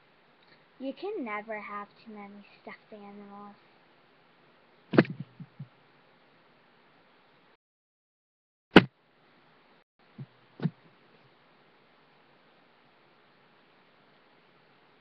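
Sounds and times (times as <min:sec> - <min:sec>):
sharp knocks: 0:05.0 - 0:05.7.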